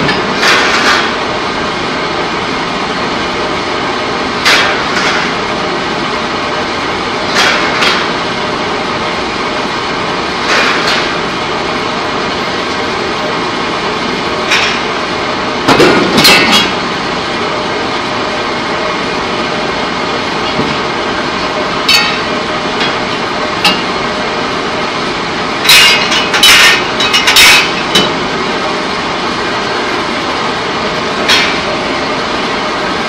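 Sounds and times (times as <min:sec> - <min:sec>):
loud steady machinery noise: 0:00.0 - 0:33.0
metal clanks and bangs: 0:15.7 - 0:16.8.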